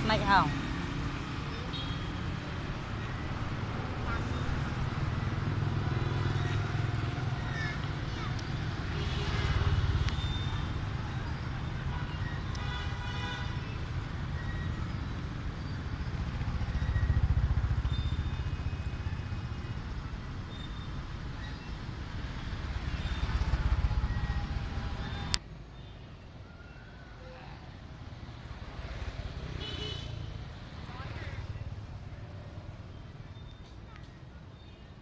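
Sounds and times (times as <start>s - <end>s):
motorbikes and cars passing: 0.0s - 35.0s
traffic hum: 0.0s - 35.0s
vehicle horn toot: 12.0s - 13.8s, 29.6s - 30.2s.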